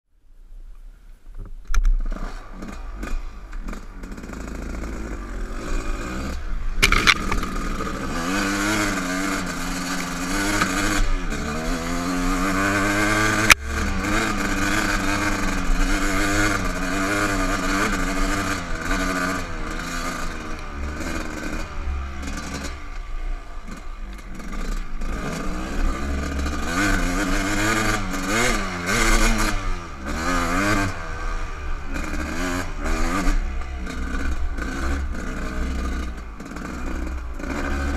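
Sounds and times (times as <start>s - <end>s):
dirt bike engine revving: 2.0s - 37.9s
sharp click: 6.8s - 7.6s.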